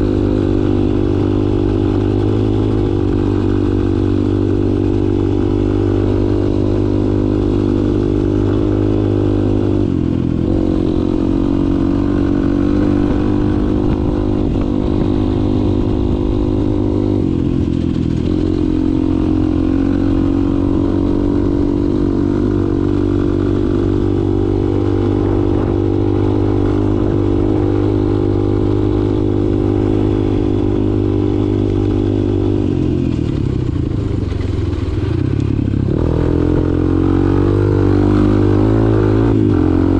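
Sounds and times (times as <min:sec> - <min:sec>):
dirt bike engine running: 0:00.0 - 0:39.9.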